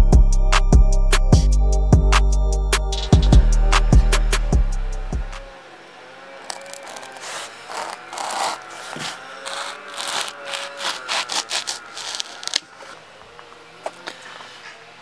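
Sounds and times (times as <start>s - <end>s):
knife sawing through foam: 6.3s - 13.0s.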